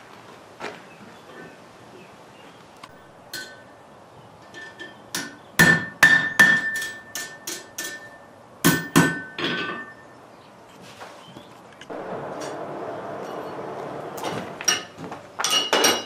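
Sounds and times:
hammer striking metal on anvil: 0:05.1 - 0:09.9.

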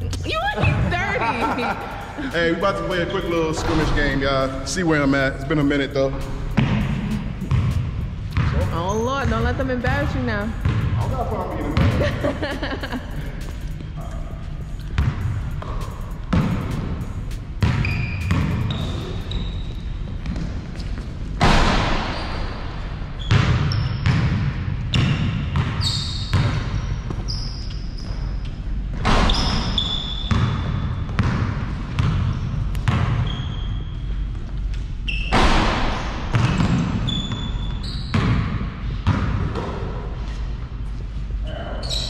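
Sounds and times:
sneaker squeaks: 0:02.8 - 0:12.2, 0:13.1 - 0:42.0
basketball bouncing: 0:05.1 - 0:13.8, 0:14.8 - 0:33.5, 0:35.2 - 0:40.1.

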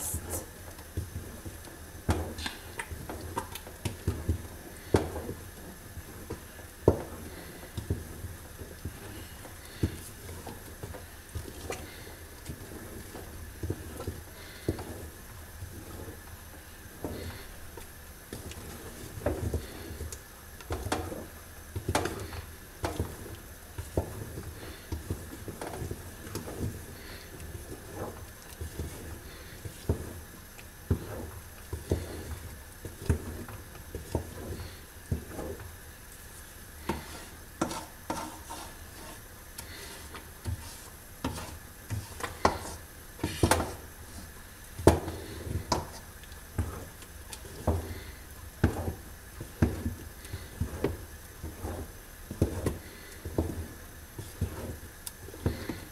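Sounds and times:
wooden stick stirring paste in pot: 0:00.0 - 0:55.9
stick knocking and scraping pot: 0:18.4 - 0:30.3, 0:30.9 - 0:35.7, 0:36.8 - 0:43.9, 0:44.8 - 0:55.9.

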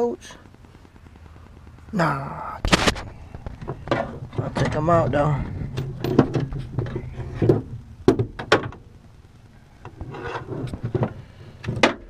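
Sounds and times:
rubbing and rustling: 0:09.9 - 0:11.2.

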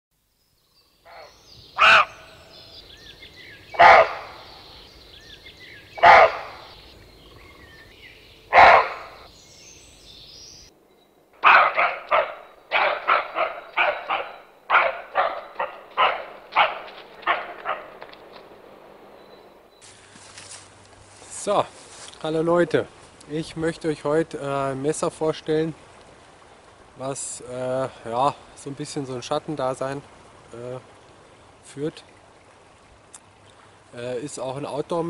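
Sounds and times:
birds chirping faintly: 0:00.2 - 0:25.4
dog barking: 0:01.1 - 0:02.2, 0:03.8 - 0:04.4, 0:06.0 - 0:06.7, 0:08.5 - 0:09.3, 0:11.4 - 0:18.1.

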